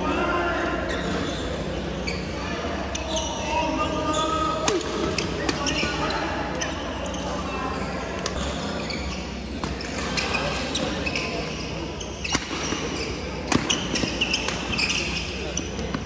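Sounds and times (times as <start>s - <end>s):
shoes squeaking on court floor: 0.7s - 16.0s
racket hitting shuttlecock: 12.3s - 12.9s, 13.5s - 15.0s.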